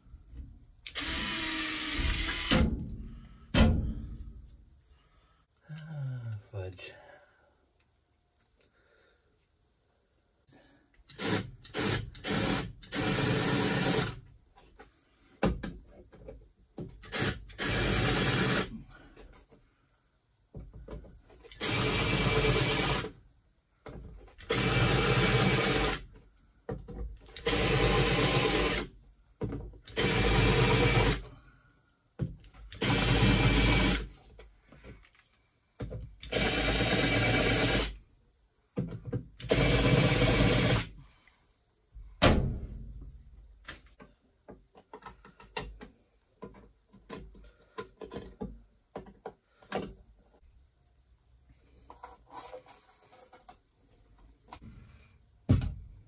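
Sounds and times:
cordless drill boring through metal: 0.9 - 2.6, 11.1 - 14.2, 17.1 - 18.7, 21.6 - 23.1, 24.4 - 26.0, 27.3 - 28.9, 29.9 - 31.3, 32.8 - 34.1, 36.2 - 38.0, 39.4 - 40.9.

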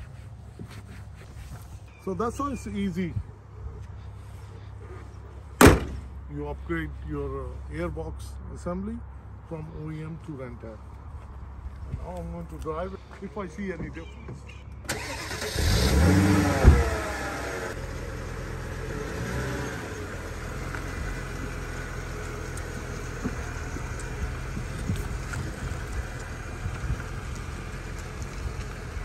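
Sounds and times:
sharp thump: 5.6 - 6.1
car engine running at low revs: 15.4 - 29.0.

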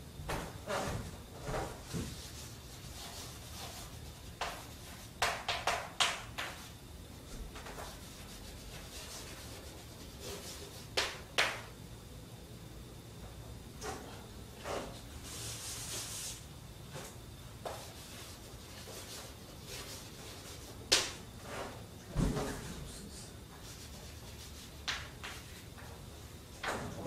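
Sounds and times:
faint room hiss: 0.0 - 27.0
chalk scratching on blackboard: 2.0 - 5.8, 7.8 - 11.2, 17.6 - 20.8, 23.5 - 25.6.

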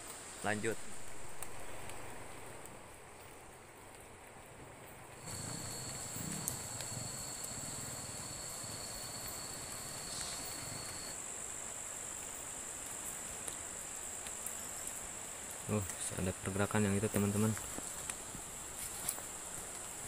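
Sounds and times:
insects trilling: 5.2 - 20.0
thin insect tone: 5.2 - 20.0.

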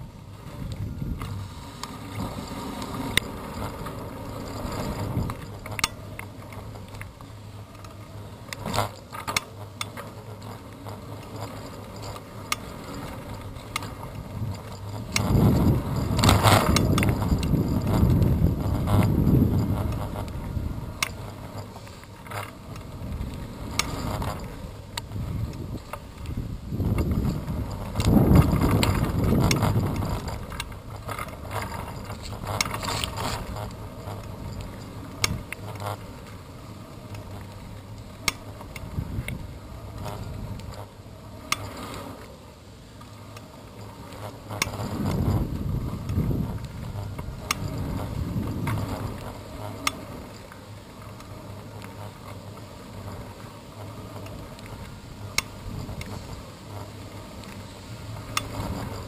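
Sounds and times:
wind buffeting microphone: 0.0 - 5.8, 14.0 - 21.6, 22.6 - 35.5, 38.5 - 40.8, 44.5 - 50.3
bicycle freewheel ticking: 0.0 - 59.0
bicycle rattling over bumps: 0.0 - 59.0.

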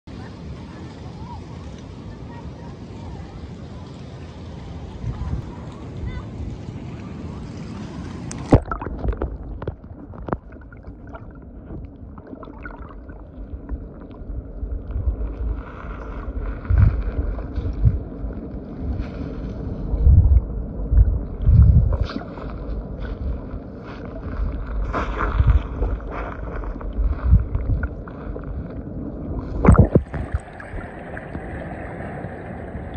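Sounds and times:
underwater sloshing and gurgling: 7.5 - 32.9
sharp water splash: 7.6 - 11.4, 29.4 - 31.9
low underwater thumps: 8.4 - 15.2, 20.0 - 22.2, 24.4 - 28.7, 29.4 - 30.6.

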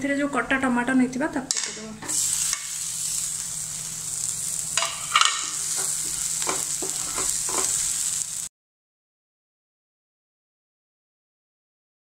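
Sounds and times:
food sizzling in a frying pan: 1.5 - 8.5
wooden spatula scraping pan: 4.8 - 8.0.

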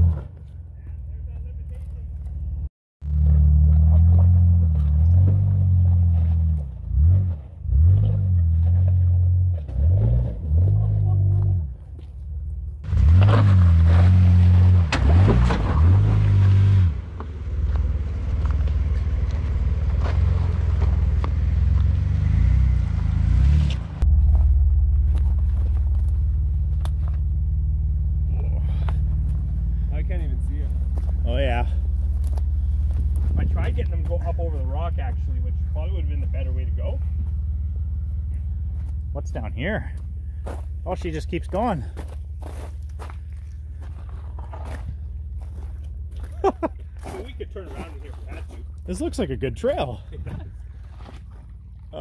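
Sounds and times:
off-road engines revving: 0.0 - 11.8, 12.8 - 52.0
steady low rumble: 17.0 - 52.0.

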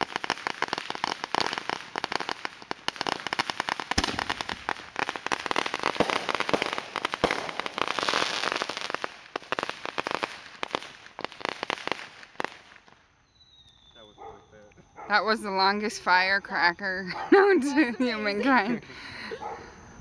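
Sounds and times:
firecrackers popping: 0.0 - 13.2.

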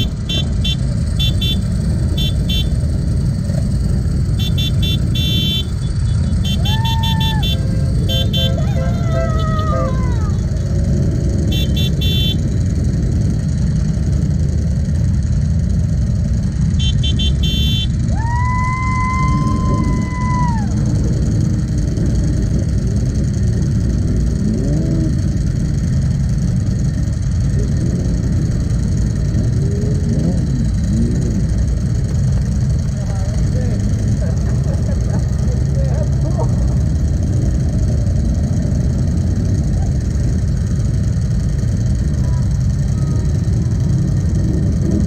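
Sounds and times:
vehicle horn: 0.0 - 2.8, 4.3 - 10.0, 11.4 - 12.6, 16.7 - 18.0
motorcycle engines idling: 0.0 - 45.0.

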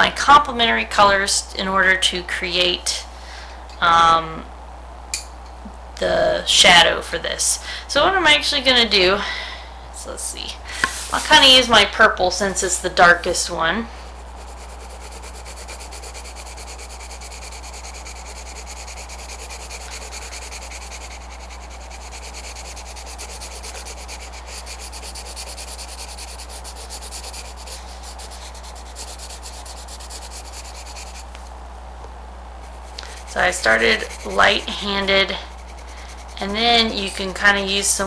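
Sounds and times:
steady low hum: 0.0 - 38.0
pencil scratching on paper: 10.9 - 11.7, 14.1 - 31.4, 32.6 - 37.6.

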